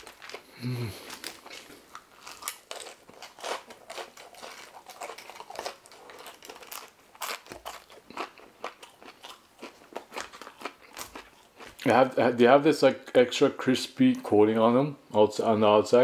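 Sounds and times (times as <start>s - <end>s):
person chewing crunchy food: 0.0s - 11.9s.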